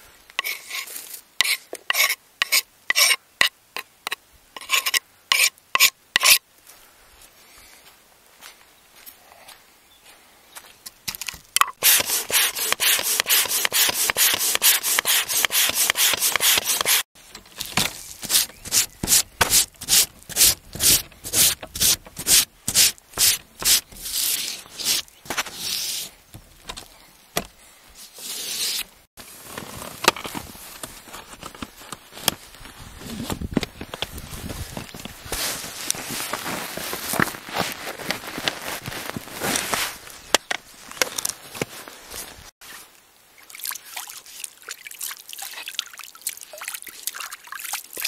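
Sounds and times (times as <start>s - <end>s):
rhythmic scraping strokes: 11.8s - 17.0s.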